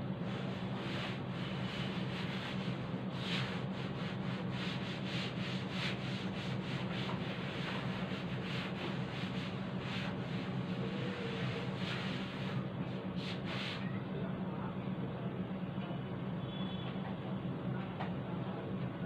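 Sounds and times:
cloth rubbing on chalkboard: 0:00.4 - 0:13.8.

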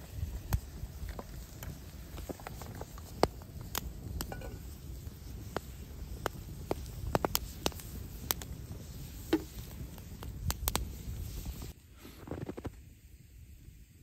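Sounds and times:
low rumble of flames: 0:00.0 - 0:14.0
wood fire crackling: 0:00.0 - 0:14.0
sharp pops: 0:05.4 - 0:11.7.

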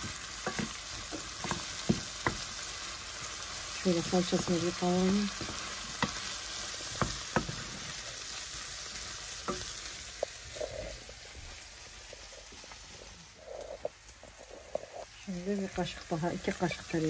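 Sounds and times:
wooden spoon knocking pan: 0:00.0 - 0:02.5, 0:06.9 - 0:07.7
food sizzling in a pan: 0:00.0 - 0:17.0.

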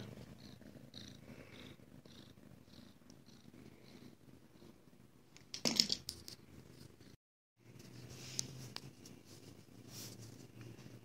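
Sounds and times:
cat purring: 0:00.0 - 0:05.0.

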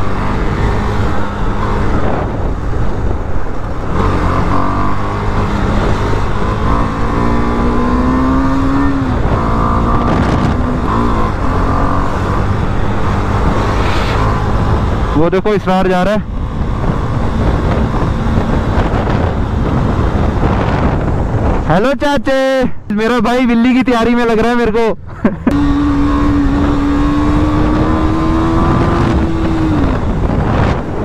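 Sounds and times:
motorcycle engine accelerating: 0:00.0 - 0:15.4, 0:25.4 - 0:31.0
low rumble: 0:12.4 - 0:15.2.

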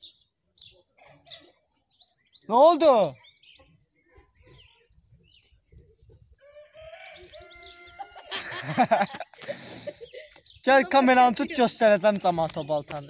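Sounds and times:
rooster crowing: 0:06.4 - 0:08.6
man laughing loudly: 0:08.0 - 0:11.2.

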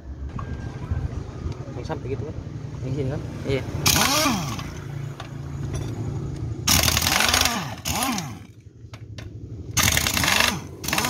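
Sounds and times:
pneumatic impact wrench hammering: 0:03.8 - 0:05.9, 0:06.6 - 0:11.0.

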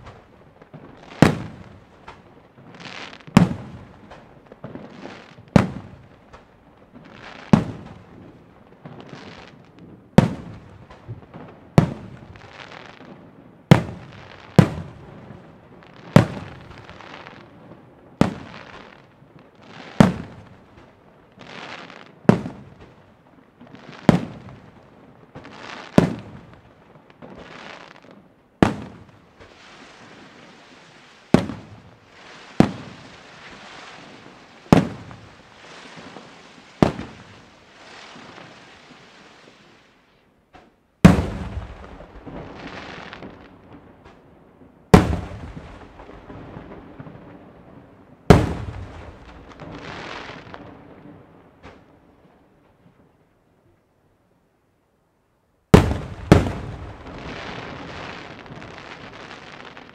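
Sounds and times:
firework shells bursting: 0:55.7 - 0:57.7.

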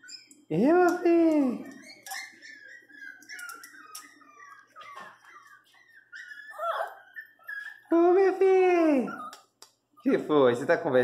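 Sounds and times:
dog crying loudly: 0:00.0 - 0:09.6
dog whining and whimpering: 0:01.5 - 0:09.6.

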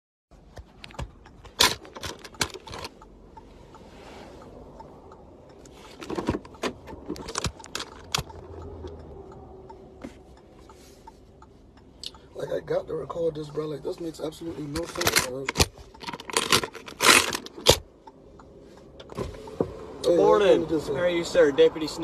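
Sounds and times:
low car cabin hum: 0:00.3 - 0:22.0.

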